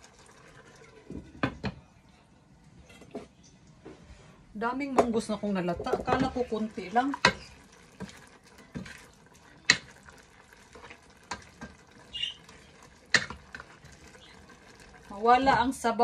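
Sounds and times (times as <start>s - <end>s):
spoon stirring thick stew: 5.8s - 15.9s
spoon knocking against pot: 13.1s - 13.4s.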